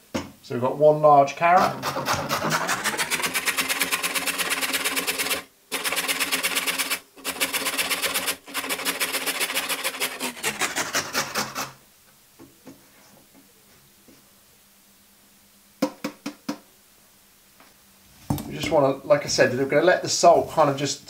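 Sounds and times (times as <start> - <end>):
carrot grated on metal grater: 1.6 - 11.8.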